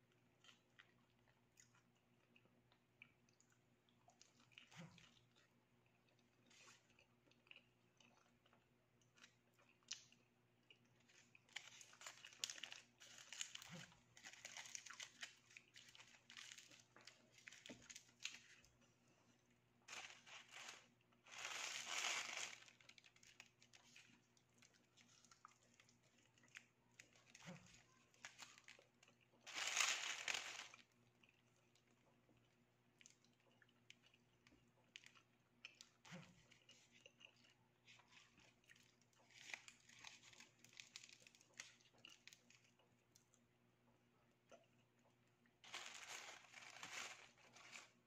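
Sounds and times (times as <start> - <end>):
quiet chewing: 0.1 - 21.3, 22.4 - 29.6, 30.4 - 43.4
aluminium foil crinkling: 11.0 - 18.8, 19.9 - 31.0, 39.2 - 42.6, 45.6 - 48.0.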